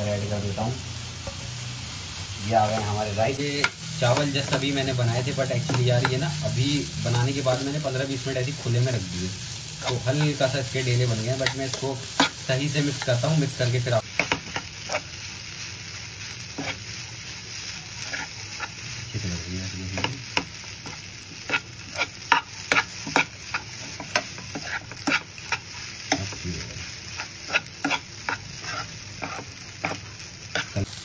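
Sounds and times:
frying sizzle: 0:00.0 - 0:31.0
metal spatula scraping frying pan: 0:16.5 - 0:16.8, 0:18.0 - 0:18.8, 0:20.8 - 0:25.7, 0:27.1 - 0:30.8.

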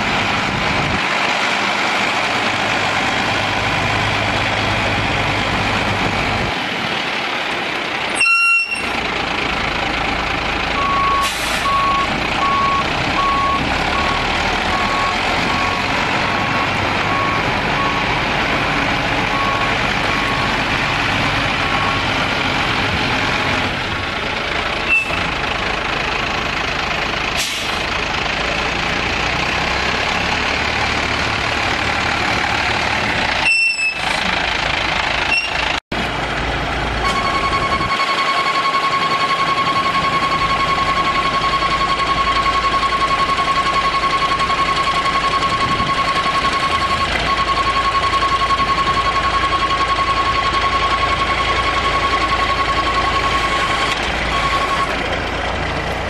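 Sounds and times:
diesel truck engine running: 0:00.0 - 0:56.0
backup alarm beeping: 0:37.0 - 0:54.9.

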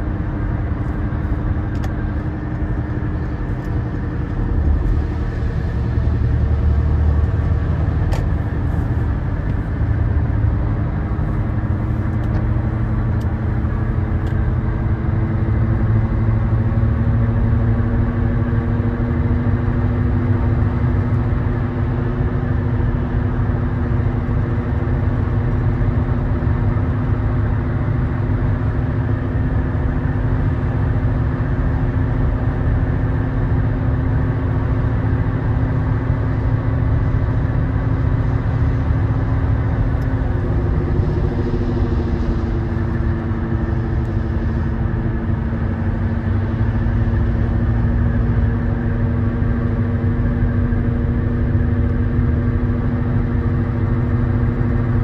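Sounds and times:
car cabin road rumble: 0:00.0 - 0:55.0
faint rising hum: 0:39.2 - 0:45.1.

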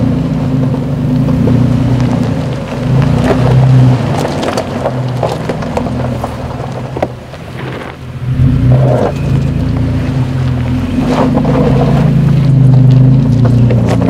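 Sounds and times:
engine running at low speed: 0:00.0 - 0:14.0
stones crackling under tyres: 0:00.0 - 0:14.0.

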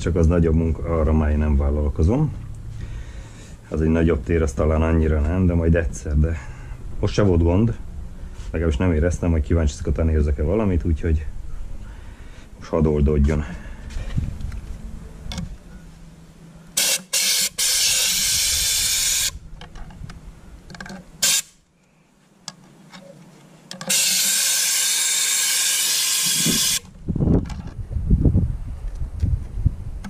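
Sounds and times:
spray gun hissing: 0:16.8 - 0:19.4, 0:23.9 - 0:26.8.

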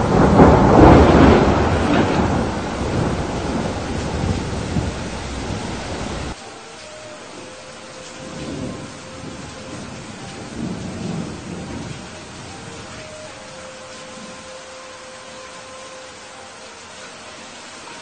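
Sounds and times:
thunder rumble: 0:00.0 - 0:06.4, 0:07.1 - 0:14.5
heavy rain: 0:00.0 - 0:18.0.

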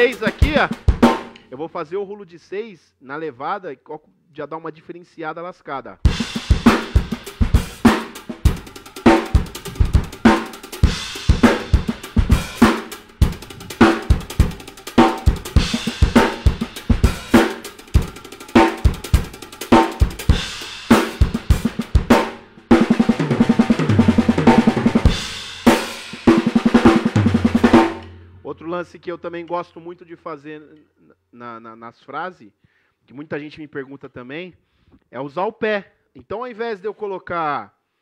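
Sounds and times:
fast tom roll: 0:00.0 - 0:01.3, 0:06.1 - 0:29.0
drum kit playing reggae groove: 0:00.0 - 0:01.5, 0:06.0 - 0:29.6.

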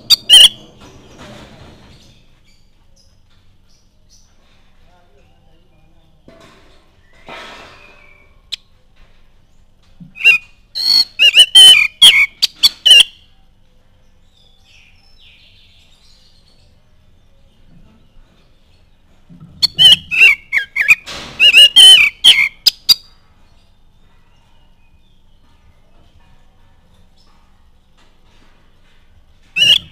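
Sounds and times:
bird singing whistled notes: 0:00.0 - 0:00.7, 0:10.2 - 0:13.3, 0:19.6 - 0:23.1, 0:29.5 - 0:29.9.

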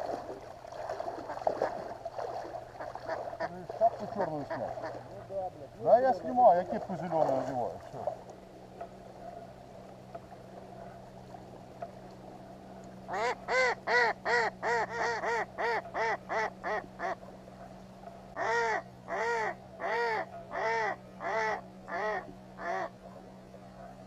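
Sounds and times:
duck quacking: 0:13.1 - 0:17.2, 0:18.4 - 0:22.9.

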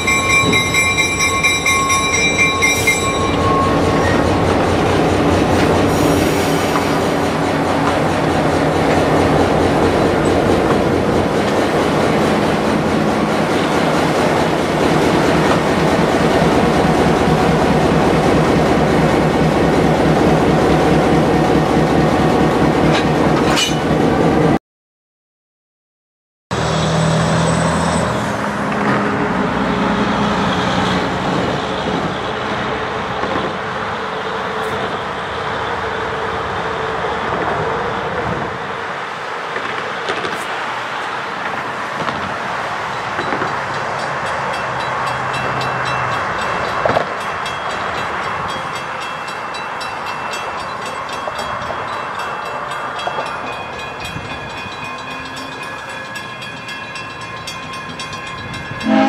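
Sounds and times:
crossing bell ringing rapidly: 0:00.0 - 0:05.0, 0:42.9 - 0:59.0
road traffic: 0:26.5 - 0:59.0.

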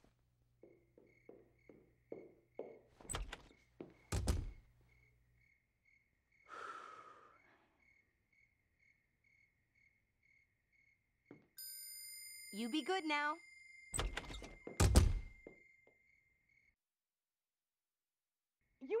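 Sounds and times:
crickets chirping: 0:00.6 - 0:11.5
heavy thuds and knocks: 0:00.7 - 0:04.6.

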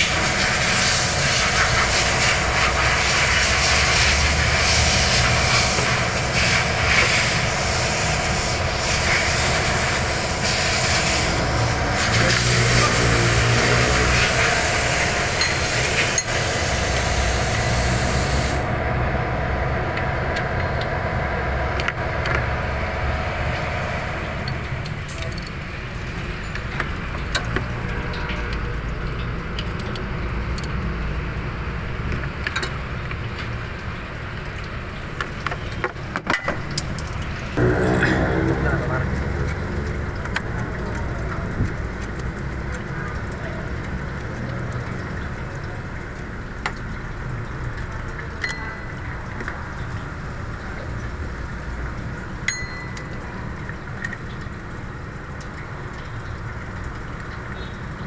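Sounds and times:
steady low rumble: 0:16.6 - 0:32.1, 0:36.5 - 0:55.5.

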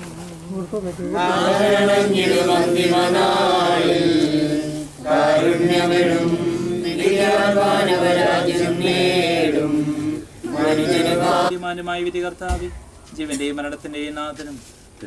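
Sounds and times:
slow chanted hymn: 0:01.1 - 0:11.5.

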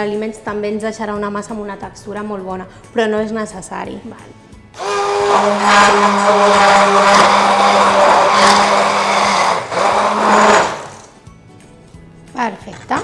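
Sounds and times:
immersion blender running: 0:04.8 - 0:11.2.

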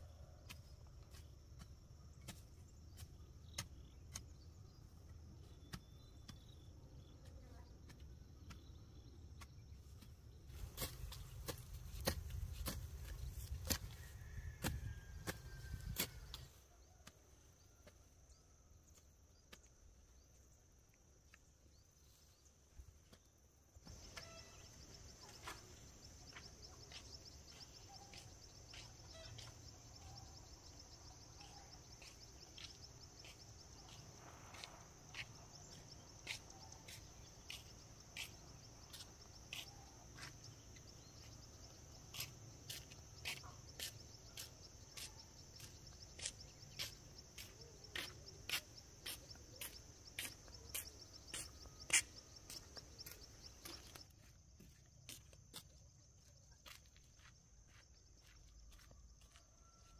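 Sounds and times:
insect drone: 0:23.2 - 0:59.9.

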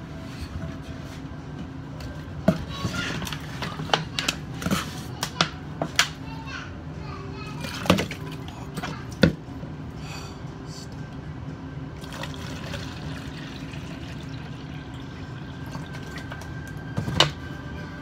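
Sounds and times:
water pouring into cup: 0:12.0 - 0:16.5.

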